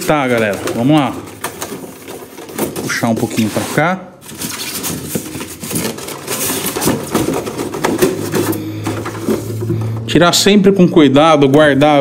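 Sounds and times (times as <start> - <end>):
styrofoam scraping and squeaking: 0.0 - 8.5.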